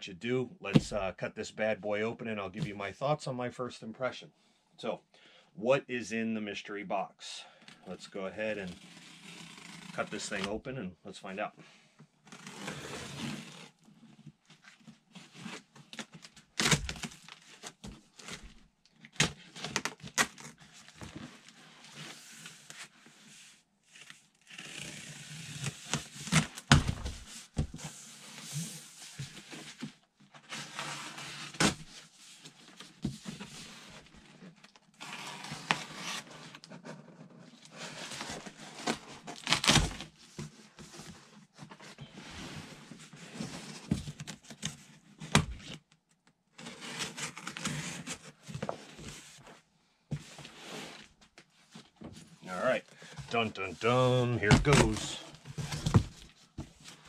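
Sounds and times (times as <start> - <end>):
packing tape tearing: 39.3 - 40.1.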